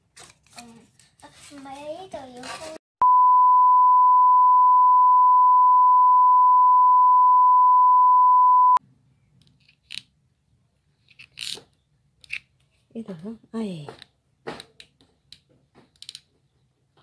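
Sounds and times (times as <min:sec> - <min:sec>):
steady test tone beep: 0:03.0 - 0:08.8.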